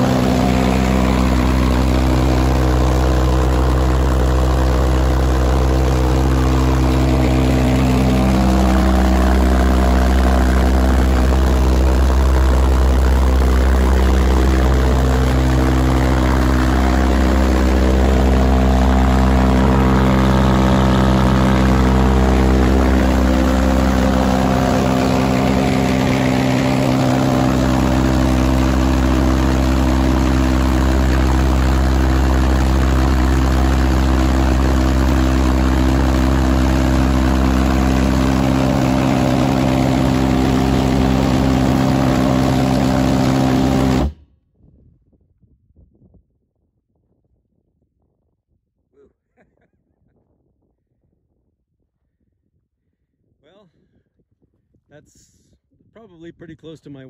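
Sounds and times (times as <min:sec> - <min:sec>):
pulsejet engine droning: 0:00.0 - 0:44.2.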